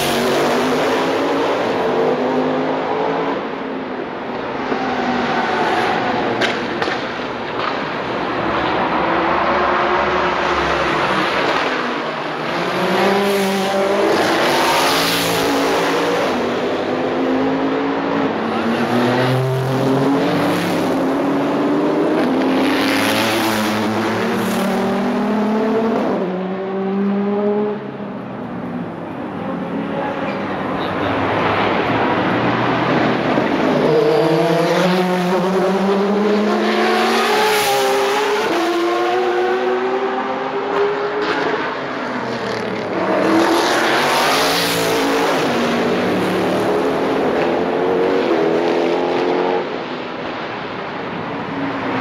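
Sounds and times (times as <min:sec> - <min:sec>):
race cars accelerating past: 0:00.0 - 0:28.0, 0:31.0 - 0:50.6.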